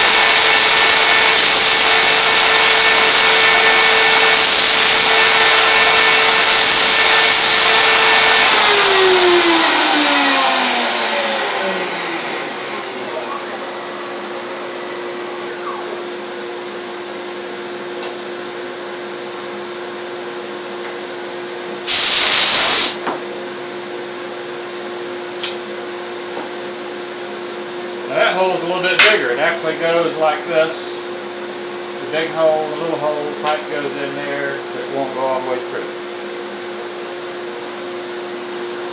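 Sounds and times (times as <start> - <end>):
spindle motor running: 0.0 - 16.2.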